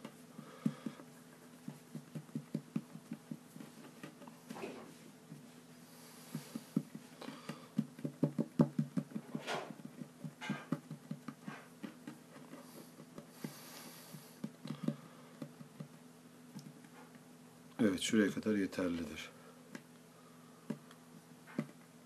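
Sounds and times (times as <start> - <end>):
fingertips tapping play dough: 0.0 - 4.4, 6.2 - 17.3, 20.6 - 21.9.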